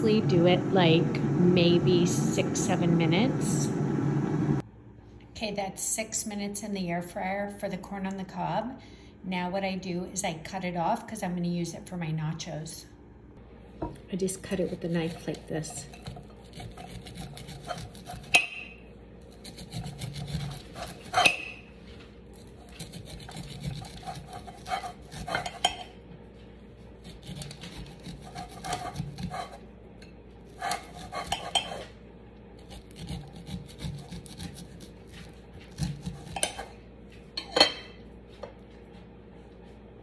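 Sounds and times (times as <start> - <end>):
knife scraping corn cob: 14.5 - 18.6, 19.3 - 21.6, 22.4 - 25.8, 27.0 - 29.6, 30.5 - 31.9, 32.6 - 36.7.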